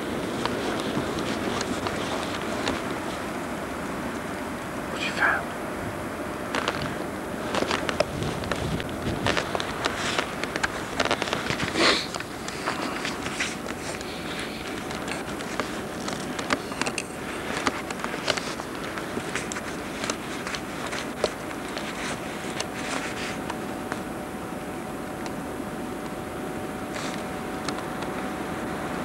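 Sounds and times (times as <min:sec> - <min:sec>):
footsteps crunching through snow: 0:00.0 - 0:04.4, 0:06.5 - 0:23.7
steady hiss: 0:00.0 - 0:29.0.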